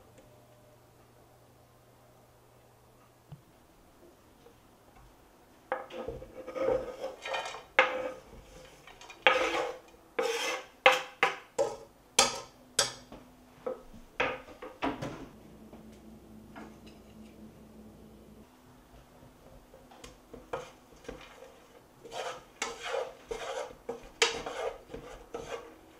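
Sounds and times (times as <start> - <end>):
scraping on cutting board: 5.7 - 11.8, 20.3 - 25.7.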